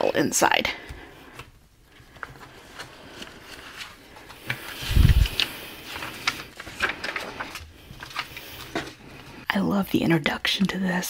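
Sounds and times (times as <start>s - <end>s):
paper rustling: 1.2s - 9.4s.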